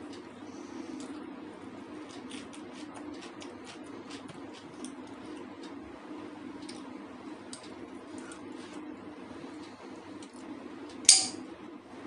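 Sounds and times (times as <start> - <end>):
chewing with wet mouth clicks: 2.0 - 5.8.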